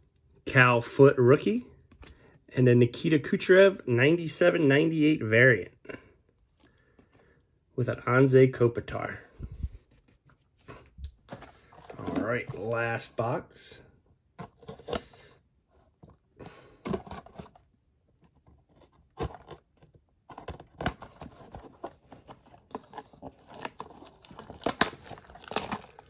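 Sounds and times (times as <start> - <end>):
shrink wrap crinkling: 20.3 - 26.0.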